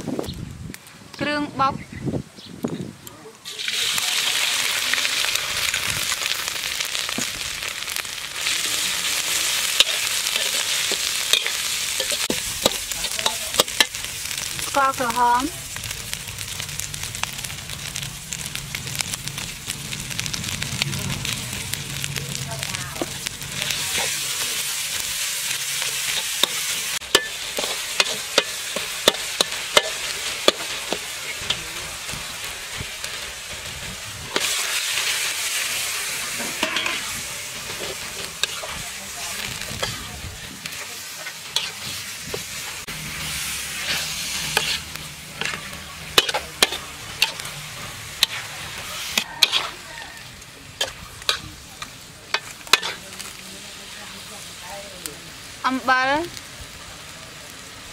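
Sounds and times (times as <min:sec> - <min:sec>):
food sizzling in wok: 0:03.4 - 0:57.9
metal ladle scraping wok: 0:07.7 - 0:15.2, 0:21.1 - 0:53.4.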